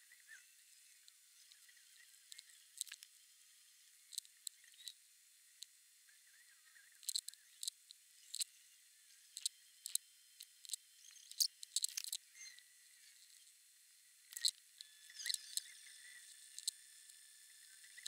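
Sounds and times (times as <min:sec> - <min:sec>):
sharp clicks: 0:02.8 - 0:03.0, 0:09.4 - 0:12.2, 0:14.3 - 0:14.6.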